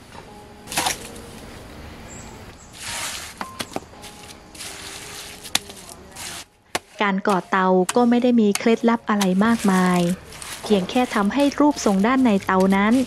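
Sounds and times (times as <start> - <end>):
trowel scooping wet mortar: 2.7 - 13.0.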